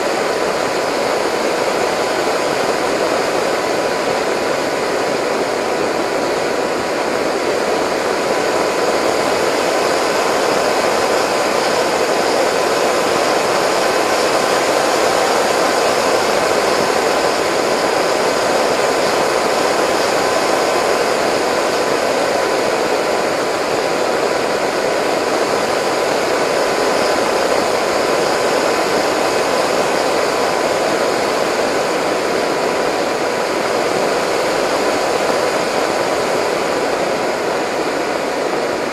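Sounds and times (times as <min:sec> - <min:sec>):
propeller motor whine: 0:00.0 - 0:38.9
rushing airflow: 0:00.0 - 0:38.9.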